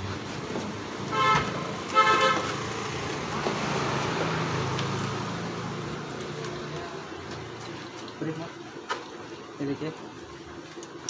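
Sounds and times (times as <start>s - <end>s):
passing vehicle engine and tyres: 0.0s - 7.2s.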